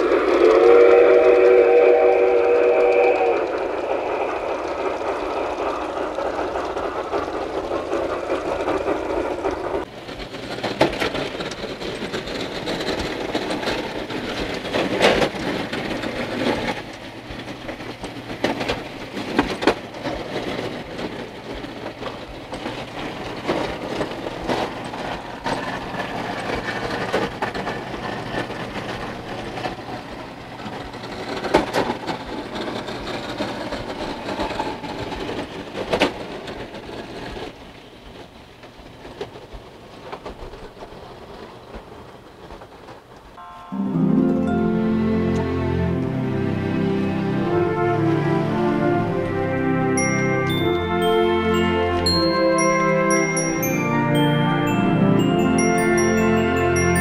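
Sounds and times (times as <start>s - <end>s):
model steam train whistle: 0.0s - 4.2s, 45.7s - 54.8s
model train running on track: 0.0s - 57.0s.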